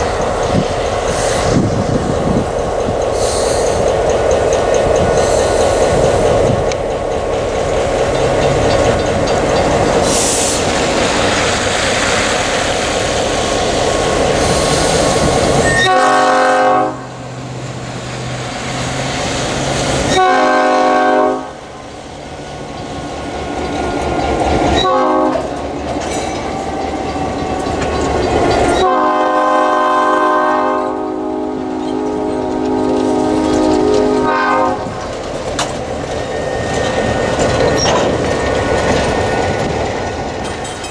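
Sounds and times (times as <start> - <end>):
diesel locomotives rumbling past: 0.0 - 40.9
train wheels on rails: 0.0 - 40.9
locomotive air horn blasts: 15.6 - 17.2, 20.1 - 21.6, 24.8 - 25.5, 28.8 - 35.0.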